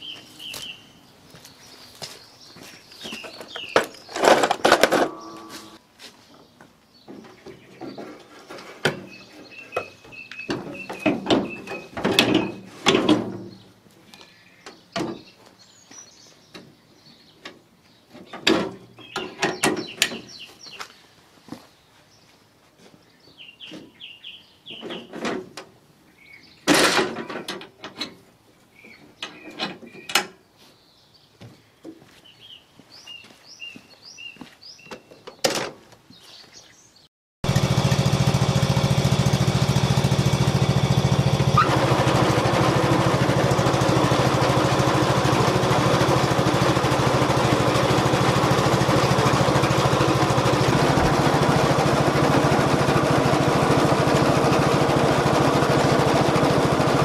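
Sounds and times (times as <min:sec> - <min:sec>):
birds chirping: 0:00.0 - 0:12.7, 0:13.4 - 0:25.2, 0:26.1 - 0:26.8, 0:28.6 - 0:35.4, 0:36.0 - 0:41.7
clunks and rattles of equipment: 0:03.1 - 0:13.6, 0:14.7 - 0:15.4, 0:17.4 - 0:20.4, 0:24.7 - 0:25.8, 0:26.6 - 0:28.3, 0:29.0 - 0:30.4, 0:34.9 - 0:36.0.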